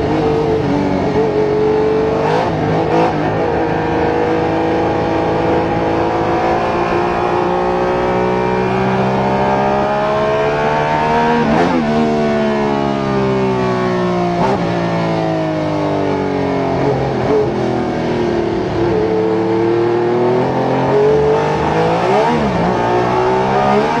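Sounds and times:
racing engine accelerating: 0.0 - 24.0.

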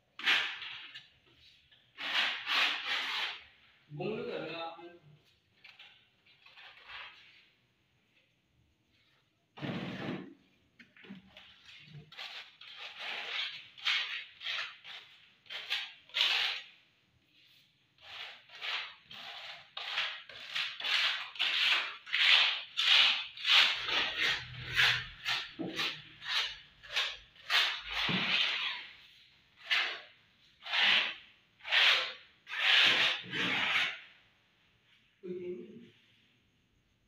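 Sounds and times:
hand tool scraping hard surface: 18.0 - 29.0.

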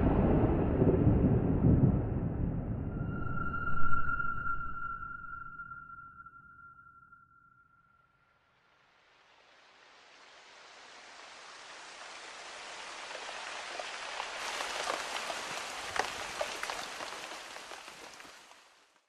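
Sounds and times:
rain falling: 9.0 - 19.0
raindrop splashes: 10.1 - 19.0.

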